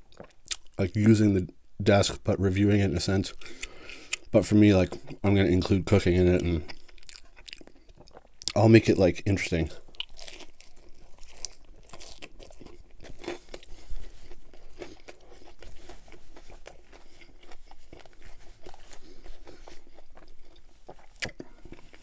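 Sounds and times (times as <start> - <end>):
chewing with crisp crunches: 0.0 - 1.0, 3.3 - 8.9, 9.6 - 22.0.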